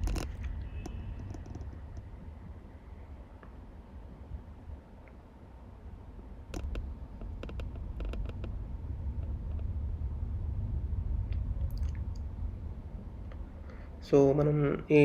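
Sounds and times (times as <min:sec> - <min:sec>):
sharp clicks and creaks: 0:00.0 - 0:02.6, 0:06.5 - 0:09.8
car rolling slowly: 0:00.0 - 0:05.2, 0:06.2 - 0:14.7.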